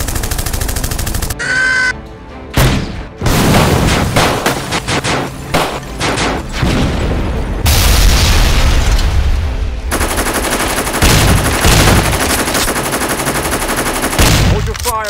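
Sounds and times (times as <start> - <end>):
rapid machine-gun fire: 0.0 - 1.4, 9.9 - 14.7
heavy explosion: 6.6 - 9.9.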